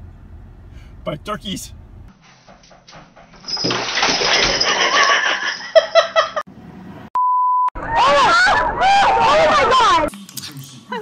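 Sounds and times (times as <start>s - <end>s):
water splashing in a bathtub: 3.4s - 5.1s.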